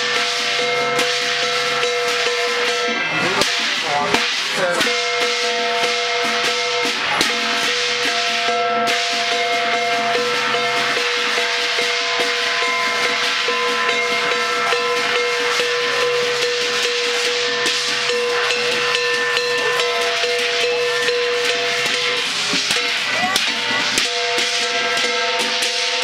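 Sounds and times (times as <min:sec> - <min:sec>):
clashing cymbals: 0:00.0 - 0:26.0
drum strokes: 0:00.0 - 0:26.0
held ringing tone: 0:07.5 - 0:26.0.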